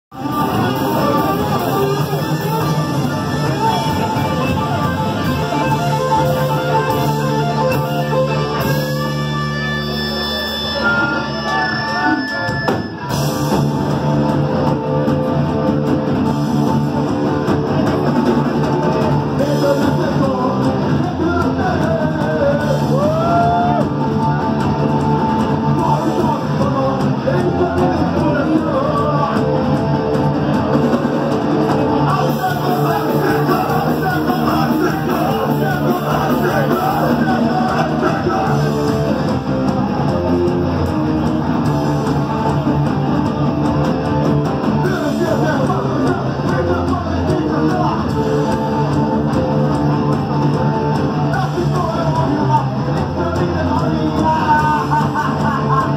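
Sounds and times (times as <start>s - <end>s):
distorted electric guitar: 0.1s - 55.9s
punk band playing live: 0.1s - 55.9s
person singing: 19.2s - 30.1s, 31.7s - 39.7s, 51.2s - 55.9s.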